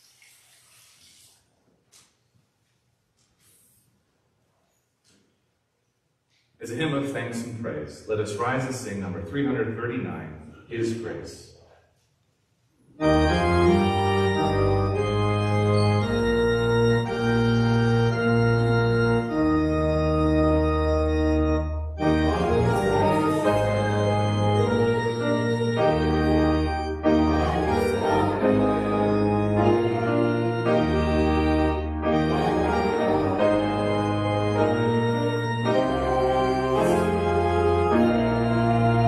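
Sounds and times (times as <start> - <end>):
organ playing a hymn: 6.6 - 11.4, 13.0 - 39.0.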